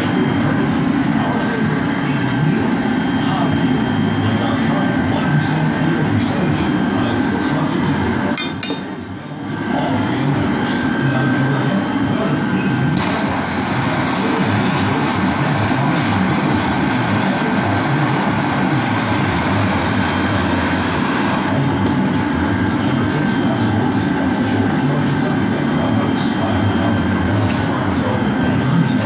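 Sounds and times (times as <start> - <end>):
gas torch flame hissing: 12.2 - 29.0.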